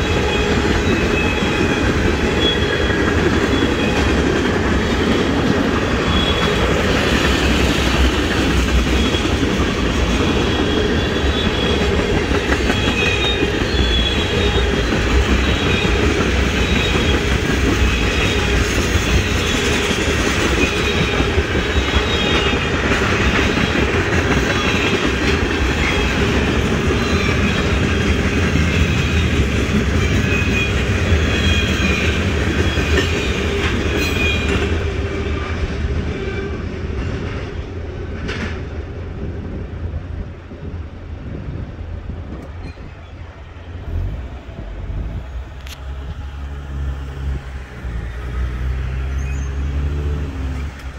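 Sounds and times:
high-pitched wheel squeals: 0.0s - 4.2s, 5.8s - 7.4s, 8.9s - 22.7s, 42.5s - 43.3s, 48.8s - 50.7s
freight train clickety-clack: 0.0s - 50.9s
road vehicle engine hum: 43.8s - 50.9s.

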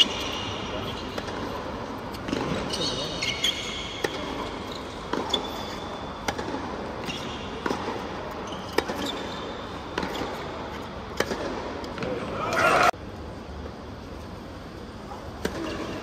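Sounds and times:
tennis shoes squeaking: 0.0s - 10.8s
ball bouncing on hard court: 2.2s - 10.4s, 11.2s - 12.2s
racquet striking tennis ball: 3.9s - 5.5s, 6.2s - 9.3s, 11.1s - 12.2s.

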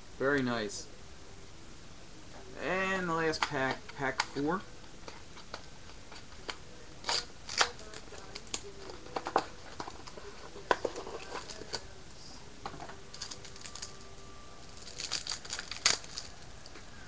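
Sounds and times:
wrapper tearing and crinkling: 7.0s - 8.7s, 13.1s - 14.0s, 14.7s - 16.5s.

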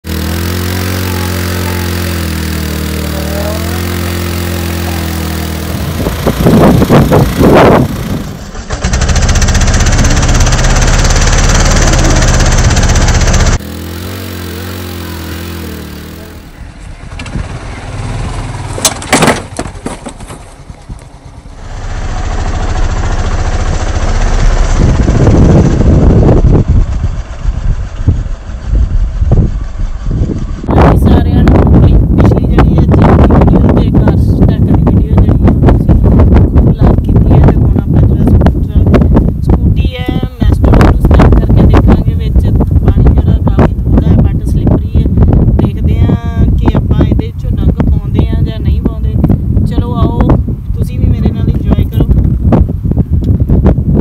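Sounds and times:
scooter engine revving: 0.0s - 49.1s
wheel spinning in mud: 0.1s - 16.4s, 17.0s - 34.6s.

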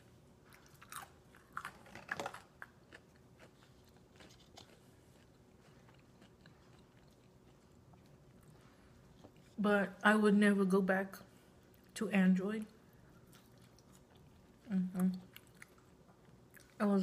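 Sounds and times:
person chewing food: 0.3s - 9.6s, 12.8s - 16.8s.

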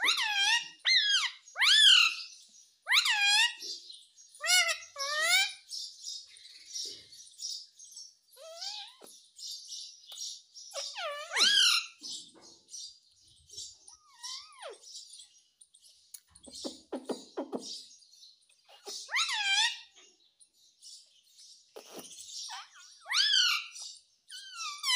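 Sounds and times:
parakeet twittering: 10.2s - 12.0s, 13.6s - 15.1s, 18.7s - 20.0s, 21.7s - 24.9s
parakeet chattering: 10.7s - 12.0s, 16.3s - 17.9s, 18.6s - 20.0s, 21.7s - 24.9s
parakeet whistled calls: 10.7s - 12.0s, 18.7s - 19.9s, 21.8s - 24.9s.

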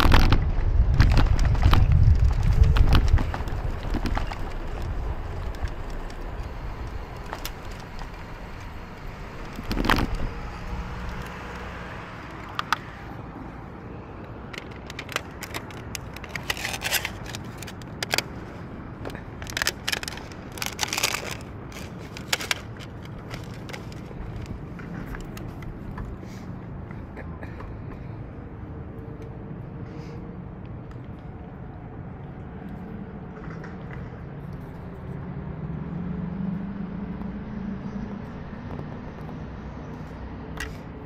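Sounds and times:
low rumble of traffic: 0.0s - 41.0s
short rattles and clicks: 14.5s - 18.4s.

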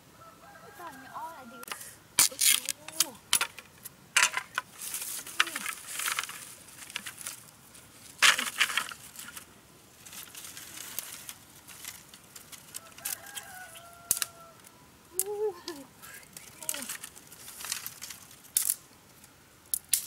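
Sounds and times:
rooster crowing: 0.1s - 2.0s, 12.7s - 14.8s
bamboo sticks clattering: 1.6s - 20.0s.

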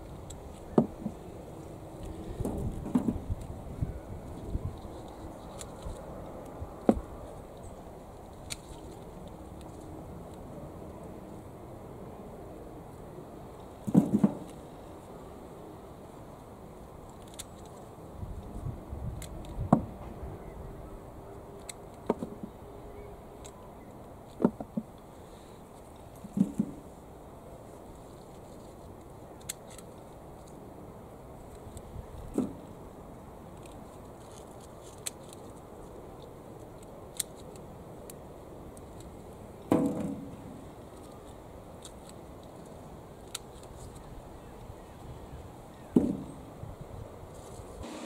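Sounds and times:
secateurs snipping: 8.3s - 9.8s.

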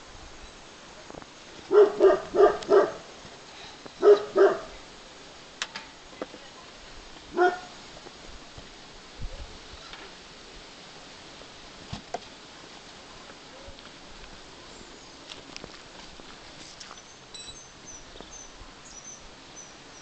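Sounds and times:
animal barking: 1.7s - 3.1s, 4.0s - 4.8s, 7.3s - 7.8s.

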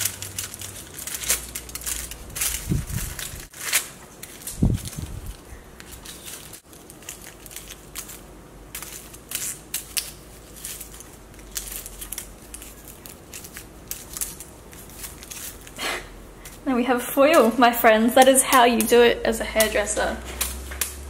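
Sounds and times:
foil crinkling and rustling: 0.0s - 16.6s.

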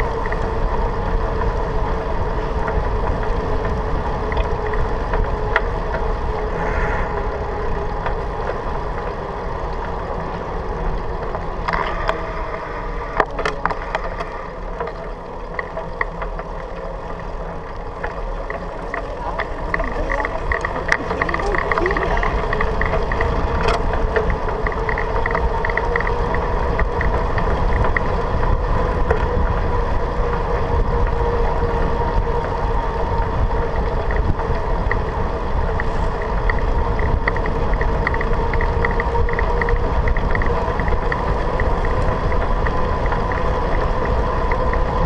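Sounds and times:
wind on the microphone: 0.0s - 15.1s, 17.7s - 45.0s
tyres rumbling on asphalt: 0.0s - 45.0s
steady hum: 4.6s - 15.4s.

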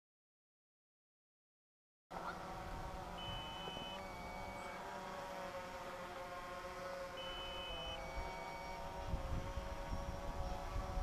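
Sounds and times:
drone propellers humming: 2.1s - 11.0s
electronic two-part beep: 3.2s - 4.6s.

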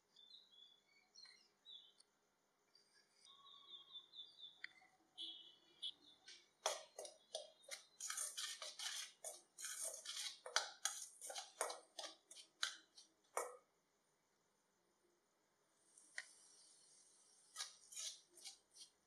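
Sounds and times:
spoon scraping steel bowl: 6.6s - 12.9s, 16.6s - 19.0s.

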